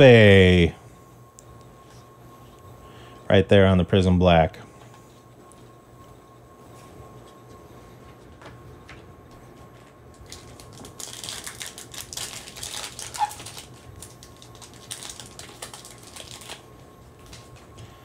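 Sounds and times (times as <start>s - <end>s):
foil card pack crinkling: 10.1s - 17.7s.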